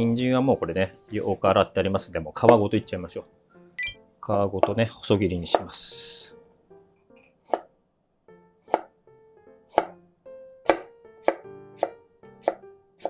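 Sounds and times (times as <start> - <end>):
faint background music: 0.0 - 13.0
knife chopping on wooden board: 5.5 - 5.7, 7.4 - 7.7, 8.6 - 9.0, 9.7 - 10.0, 10.6 - 12.6.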